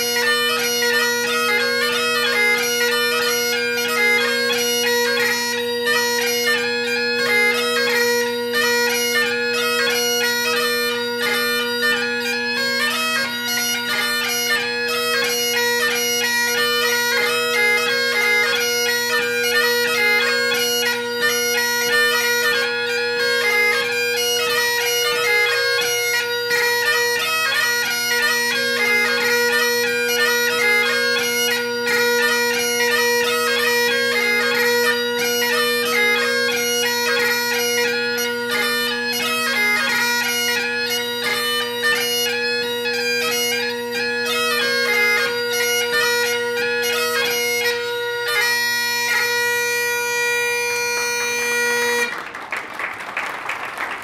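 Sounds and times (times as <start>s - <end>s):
bagpipe playing: 0.0s - 52.4s
applause: 52.0s - 54.0s.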